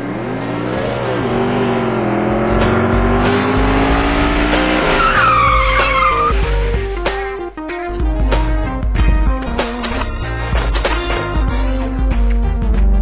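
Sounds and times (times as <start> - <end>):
car engine revving: 0.0 - 7.2
music: 2.2 - 13.0
tyres squealing: 4.8 - 6.4.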